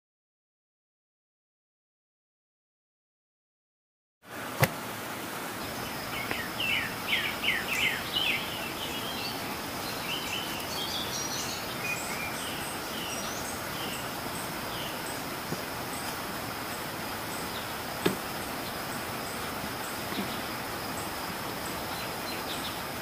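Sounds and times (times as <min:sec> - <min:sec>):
steady hiss: 0:04.3 - 0:23.0
birds chirping: 0:04.4 - 0:23.0
high insect drone: 0:05.6 - 0:23.0.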